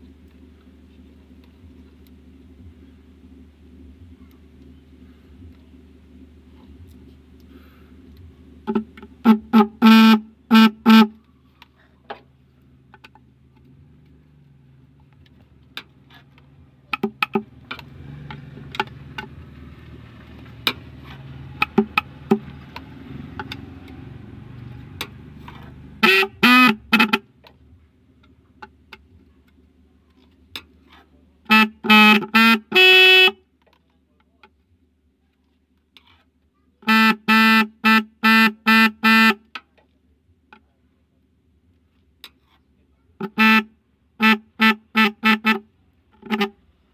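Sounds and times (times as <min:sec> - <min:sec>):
electric horn beeps: 0:08.7 - 0:11.2, 0:25.4 - 0:27.3, 0:31.5 - 0:33.4.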